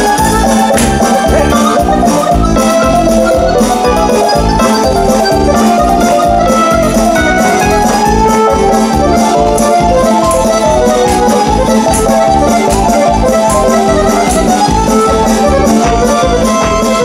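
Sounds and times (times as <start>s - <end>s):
folk dance music on keyboard: 0.0s - 17.0s.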